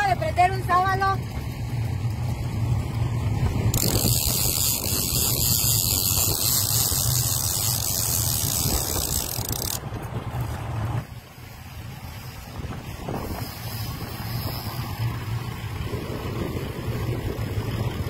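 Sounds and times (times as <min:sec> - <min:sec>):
outboard motor running: 0:00.0 - 0:18.0
wind hiss: 0:03.4 - 0:09.8, 0:11.4 - 0:18.0.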